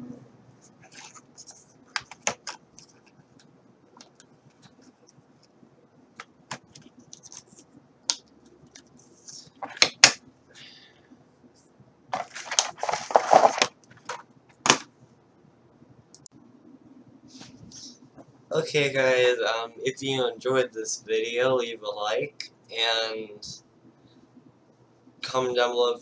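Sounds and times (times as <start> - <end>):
plastic packaging rustling scrape: 12.2 - 13.7.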